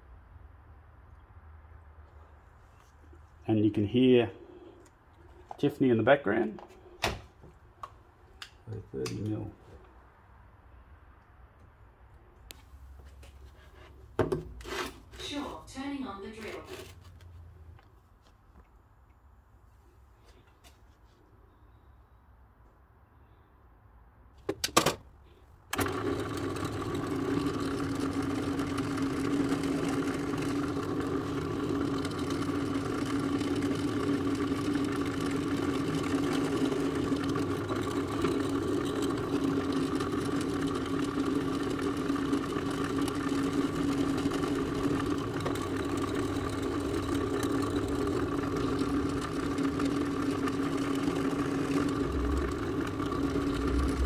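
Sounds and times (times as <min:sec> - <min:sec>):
drill press motor humming: 0:25.7 - 0:54.0
drill bit drilling plastic: 0:25.8 - 0:54.0.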